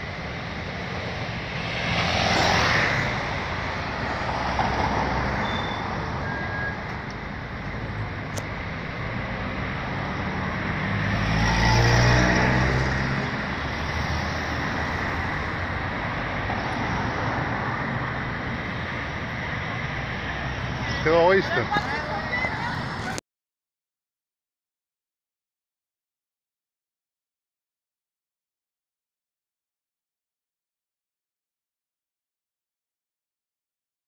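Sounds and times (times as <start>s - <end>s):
car engines running: 0.0s - 23.2s
tyres on the road: 0.0s - 23.2s
car driving past close: 1.4s - 6.8s, 9.2s - 18.3s.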